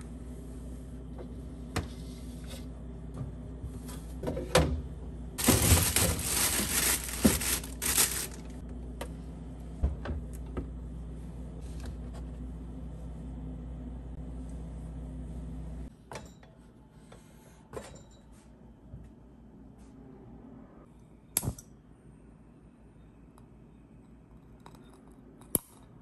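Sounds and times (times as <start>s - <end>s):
steady low hum: 0.0s - 15.9s
items knocking on fridge shelf: 5.4s - 8.4s
plastic bag rustling: 5.4s - 8.6s.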